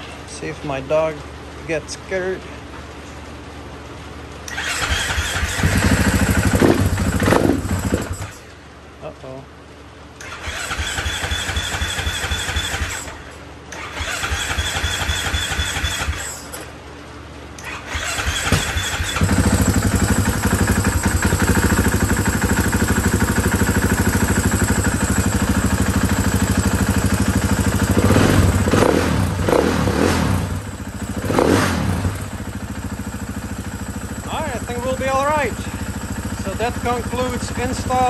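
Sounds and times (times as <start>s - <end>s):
motorcycle engine idling: 2.4s - 8.9s, 9.8s - 38.0s
electric starter cranking: 4.4s - 8.4s, 10.2s - 16.6s, 17.6s - 30.6s.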